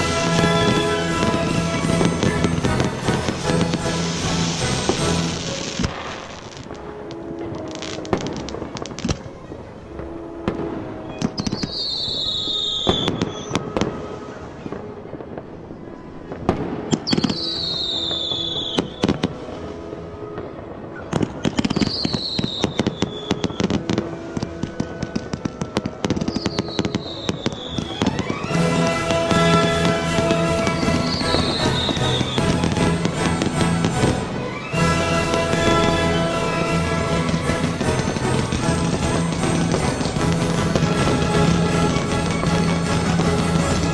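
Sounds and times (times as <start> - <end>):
background music: 0.0 - 9.1, 16.4 - 43.9
fireworks banging and crackling: 0.0 - 43.9
high falling whistle: 11.0 - 14.6, 26.3 - 43.9.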